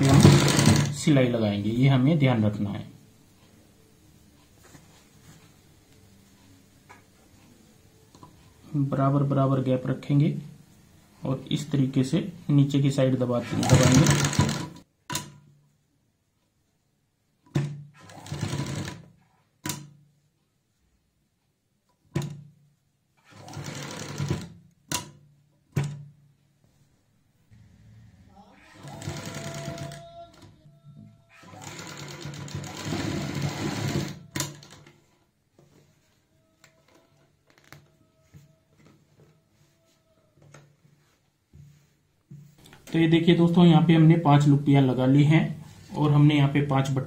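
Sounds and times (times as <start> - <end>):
sewing machine stitching: 0.0 - 1.1, 13.4 - 14.8, 17.6 - 19.9, 23.2 - 25.1, 28.5 - 30.5, 31.3 - 35.1.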